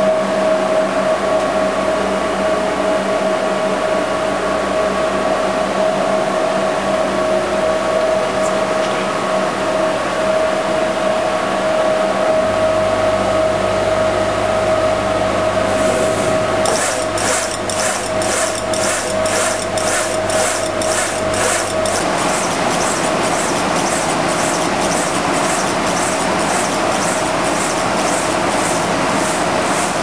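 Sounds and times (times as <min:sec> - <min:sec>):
pulsing hiss: 0:15.8 - 0:30.0
laser engraver humming: 0:16.2 - 0:30.0.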